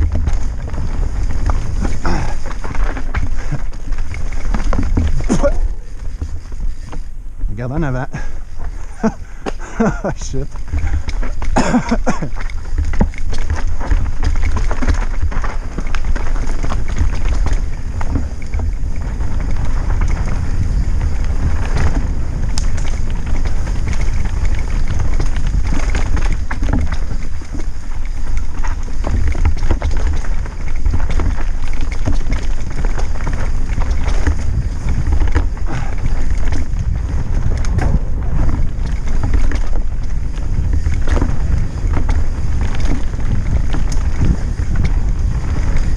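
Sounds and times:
wind rumbling on microphone: 0:00.0 - 0:45.9
tyres knocking on rocks: 0:09.0 - 0:15.2.

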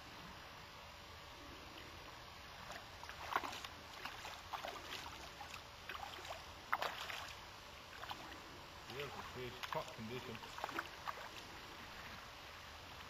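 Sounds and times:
faint steady hiss: 0:00.0 - 0:13.0
fish splashing at water surface: 0:02.7 - 0:07.4.

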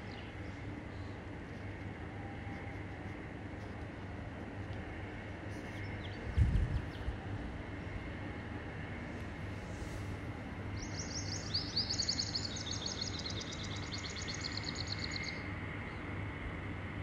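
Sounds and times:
low hum: 0:00.0 - 0:17.0
small birds chirping: 0:10.7 - 0:16.0.

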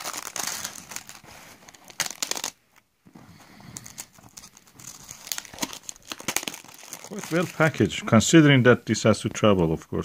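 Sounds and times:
plastic film crinkling: 0:00.0 - 0:02.9, 0:03.6 - 0:08.0.

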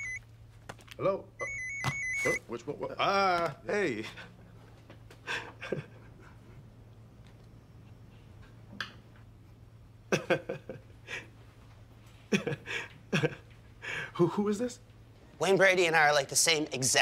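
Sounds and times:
low steady hum: 0:00.0 - 0:17.0
man laughing: 0:05.2 - 0:06.5, 0:10.1 - 0:11.3, 0:12.3 - 0:13.5.

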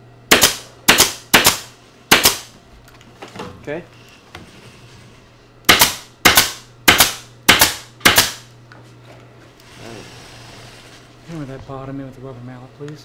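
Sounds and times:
pneumatic stapler firing: 0:00.3 - 0:02.5, 0:05.7 - 0:08.5.

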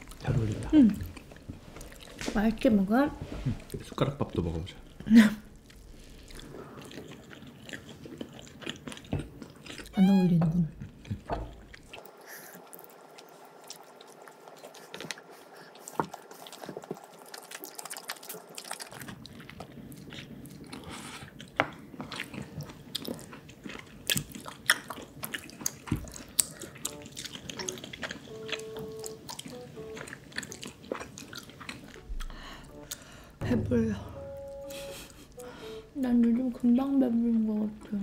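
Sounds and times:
wet chewing and biting: 0:00.0 - 0:02.4, 0:03.6 - 0:10.0, 0:10.8 - 0:33.4.

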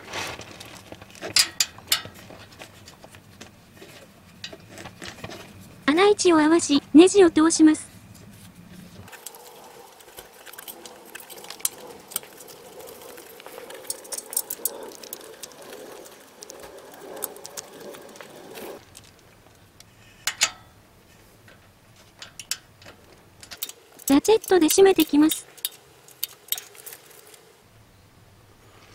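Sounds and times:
soft steady background hiss: 0:00.0 - 0:28.9
small metallic clicks and taps: 0:21.5 - 0:27.0.

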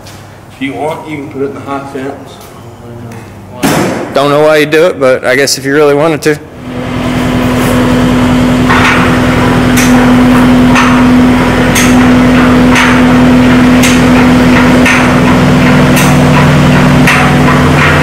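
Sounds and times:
engine running steadily: 0:06.4 - 0:18.0
post driver hammering post: 0:08.7 - 0:18.0.

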